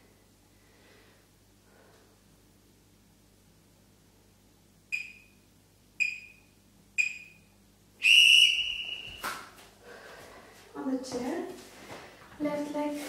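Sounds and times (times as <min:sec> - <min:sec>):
long loud beep: 0:04.9 - 0:05.4, 0:06.0 - 0:09.2
short high beeps: 0:04.9 - 0:05.4, 0:06.0 - 0:07.4.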